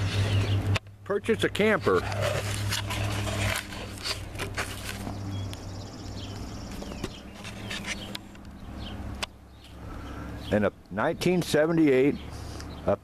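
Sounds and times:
steady low hum: 0.0 - 13.0
camera handling rustle: 2.0 - 5.2, 6.7 - 8.5.

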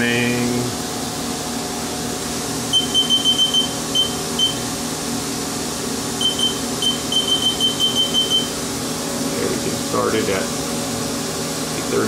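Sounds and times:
steady machine hum: 0.0 - 12.0
short high keypad beeps: 2.8 - 4.6, 6.2 - 8.5.

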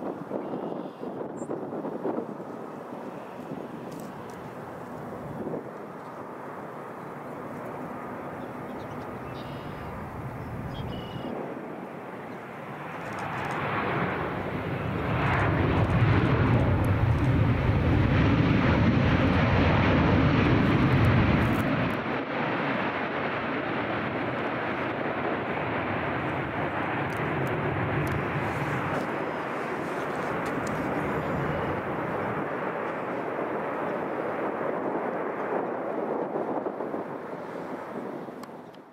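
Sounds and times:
jet engines reverse thrust rumble: 1.1 - 38.9.

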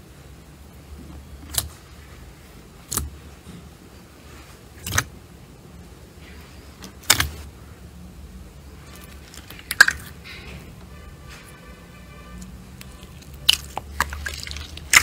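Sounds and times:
slime popping: 1.4 - 1.8, 2.8 - 3.2, 4.8 - 5.1, 6.8 - 7.4, 9.0 - 10.2, 12.8 - 15.0
slime squelching squeakily: 12.8 - 15.0.

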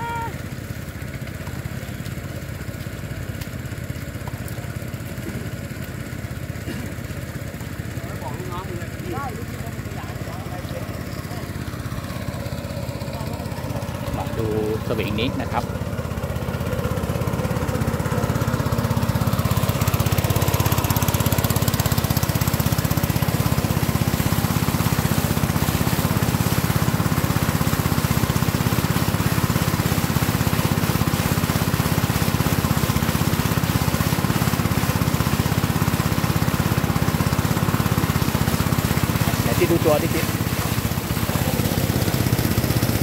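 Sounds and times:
small engine running: 0.0 - 43.0
water splashing and pouring: 0.0 - 43.0.

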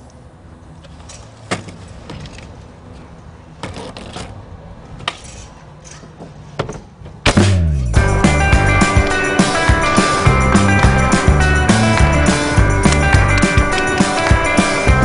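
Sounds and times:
loud rock music: 7.4 - 15.0
skateboard wheels rolling on pavement: 8.0 - 15.0
skateboard clacking on ground: 12.9 - 14.9.

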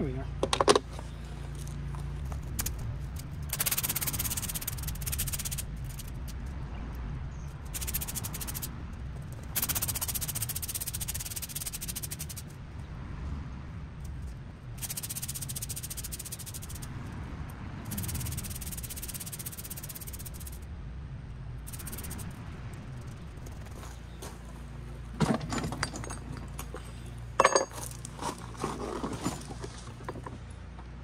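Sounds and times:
rake scraping debris and gravel: 25.2 - 30.4.

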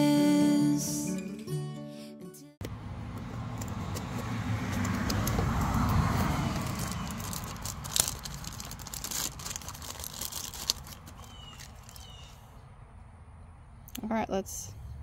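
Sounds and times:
plastic packaging crinkling: 6.4 - 12.2.

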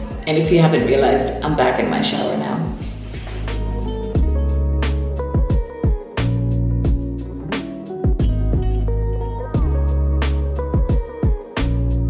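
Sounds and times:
music with a beat: 2.7 - 12.0
sliding deep bass notes: 2.8 - 5.4, 6.2 - 7.5, 8.2 - 10.9, 11.6 - 12.0.

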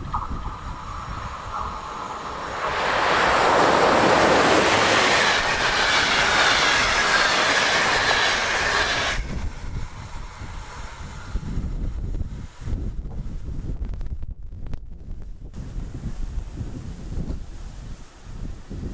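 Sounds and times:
faint high whine: 0.0 - 11.6
train wheels rushing on rail: 0.0 - 13.5
wind on microphone: 0.0 - 18.9.

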